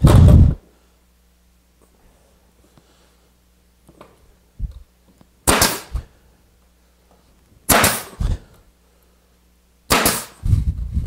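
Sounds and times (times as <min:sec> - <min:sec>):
nail gun shots into plywood: 0:05.4 - 0:06.0, 0:07.7 - 0:08.4, 0:09.9 - 0:10.4.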